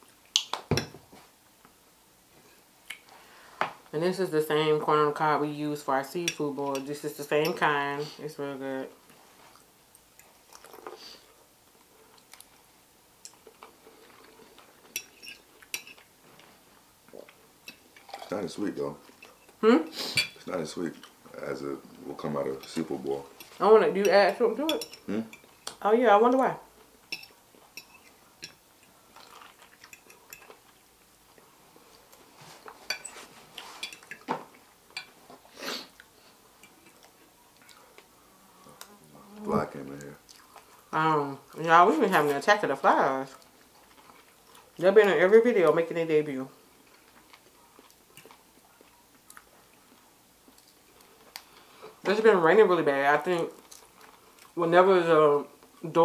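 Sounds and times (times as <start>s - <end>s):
people chewing food: 9.1s - 19.7s, 26.7s - 42.3s, 43.0s - 45.0s, 46.6s - 52.1s, 53.2s - 54.6s.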